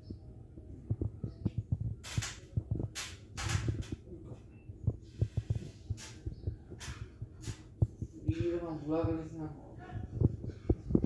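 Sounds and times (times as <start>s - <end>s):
microphone handling thumps: 2.6s - 9.3s, 9.9s - 11.0s.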